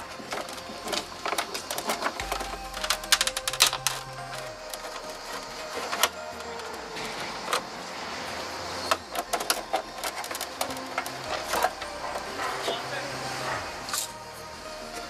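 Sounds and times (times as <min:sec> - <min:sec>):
tool and plastic parts clicking: 0:00.0 - 0:07.7, 0:08.8 - 0:12.8.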